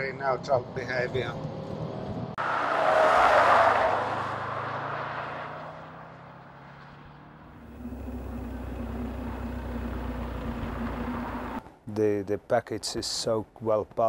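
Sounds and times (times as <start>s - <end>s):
car driving past at speed: 1.8s - 11.6s
low engine drone: 7.5s - 11.6s.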